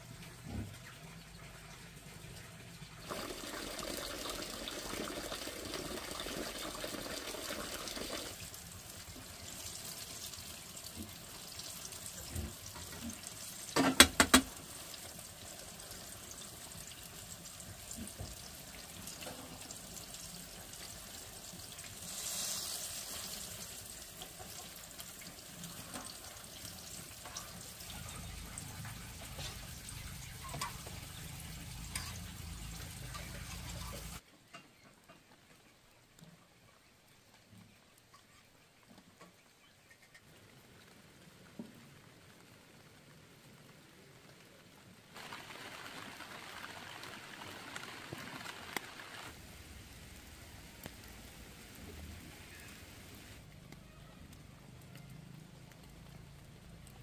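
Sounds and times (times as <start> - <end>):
water pouring: 0.2 - 34.2, 45.1 - 53.4.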